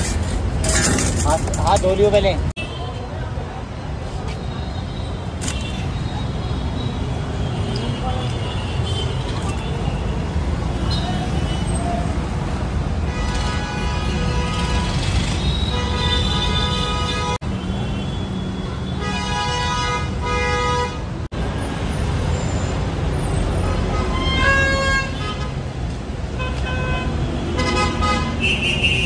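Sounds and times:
road traffic rumble: 0:00.0 - 0:29.0
vehicle horns honking: 0:26.4 - 0:29.0.

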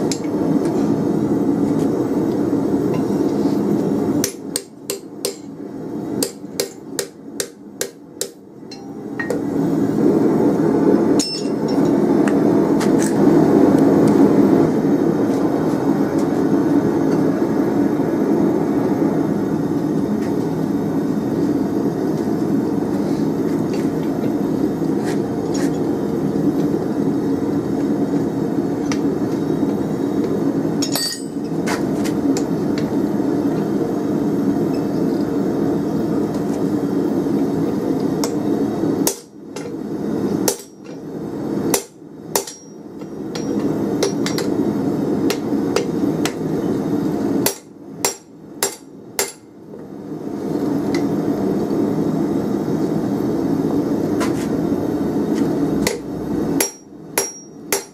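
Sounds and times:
hammer striking hot steel: 0:00.0 - 0:00.8, 0:04.2 - 0:05.6, 0:06.2 - 0:09.5, 0:11.2 - 0:13.2, 0:30.8 - 0:32.9, 0:38.2 - 0:38.4, 0:39.0 - 0:39.8, 0:40.4 - 0:41.1, 0:41.7 - 0:44.6, 0:45.2 - 0:46.5, 0:47.4 - 0:49.5, 0:55.4 - 0:57.9.

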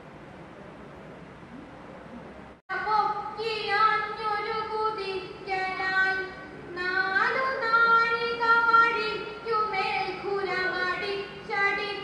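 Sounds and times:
woman singing unaccompanied chant: 0:02.7 - 0:12.0.

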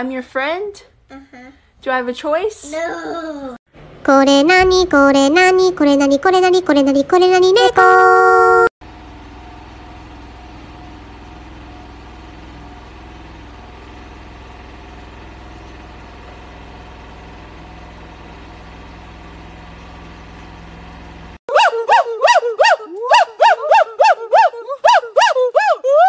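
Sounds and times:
steady low hum: 0:03.8 - 0:21.4
gibbon calls: 0:21.5 - 0:26.0.

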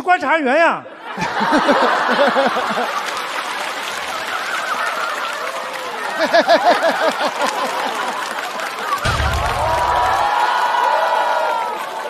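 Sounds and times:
audience laughing: 0:00.9 - 0:10.3
person laughing rhythmically: 0:06.2 - 0:08.0.

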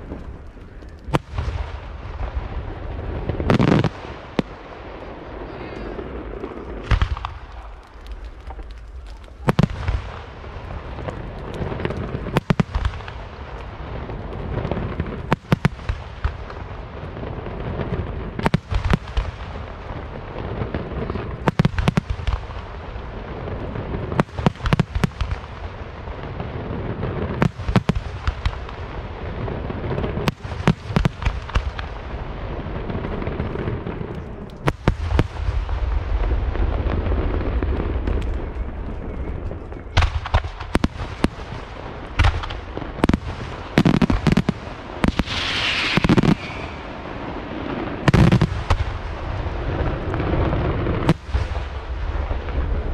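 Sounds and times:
firework shells booming: 0:39.9 - 0:52.9.

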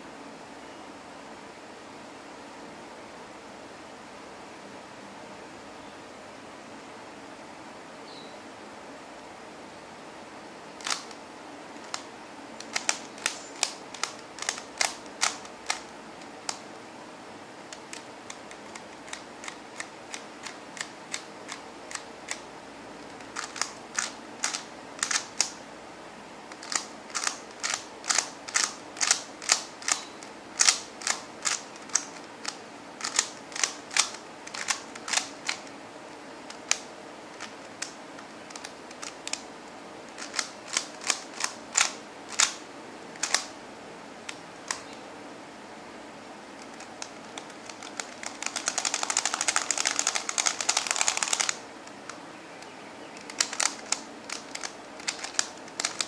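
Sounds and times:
puzzle cube layers clicking: 0:10.8 - 0:11.2, 0:11.8 - 0:16.7, 0:23.0 - 0:25.6, 0:26.5 - 0:30.0, 0:30.6 - 0:35.7, 0:36.5 - 0:39.5, 0:40.1 - 0:42.6, 0:43.2 - 0:43.5, 0:46.6 - 0:51.6, 0:53.2 - 0:56.0.

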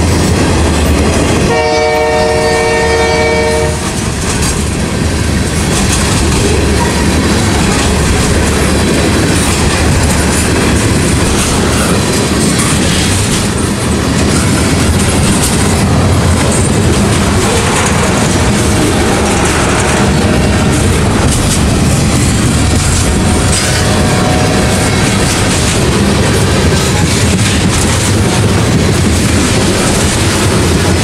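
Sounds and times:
freight train cars rumbling past: 0:00.0 - 0:31.0
locomotive horn chord: 0:01.5 - 0:04.0, 0:23.2 - 0:24.9.

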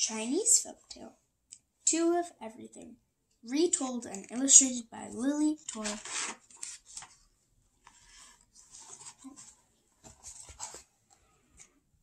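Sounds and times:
book pages rustling: 0:04.1 - 0:11.8.

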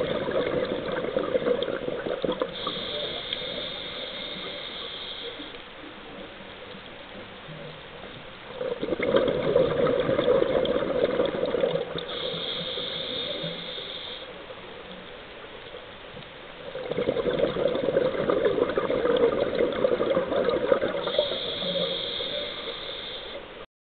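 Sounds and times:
regulator bubbles gurgling: 0:00.0 - 0:04.8, 0:08.5 - 0:13.9, 0:16.6 - 0:22.9
thin high hiss: 0:02.5 - 0:05.9, 0:12.0 - 0:14.7, 0:21.0 - 0:23.7.

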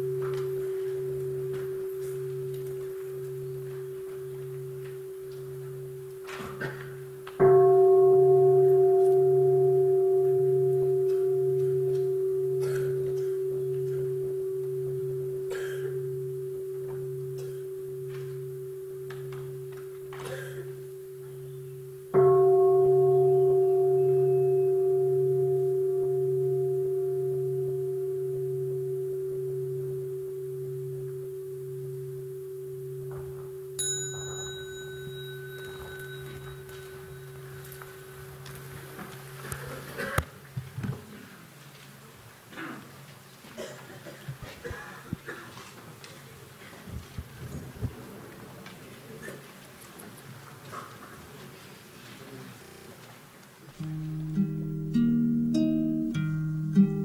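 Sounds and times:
meditation bowl bell ringing: 0:00.0 - 0:40.1, 0:53.8 - 0:57.0
bright high clink: 0:33.1 - 0:38.7.

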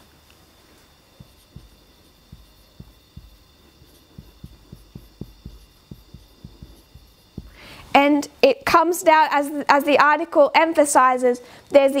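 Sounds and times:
faint steady hum: 0:00.0 - 0:12.0
marker writing on whiteboard: 0:01.2 - 0:07.7.

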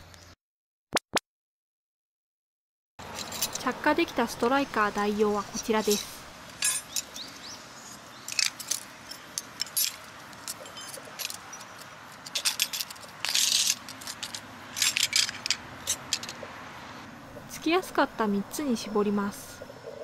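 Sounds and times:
metal tools clinking on wood: 0:03.0 - 0:03.7, 0:05.8 - 0:07.2, 0:08.3 - 0:16.4.

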